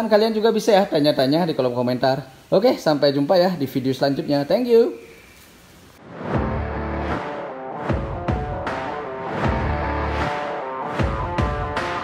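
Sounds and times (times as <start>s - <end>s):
dramatic background music: 6.1s - 12.0s.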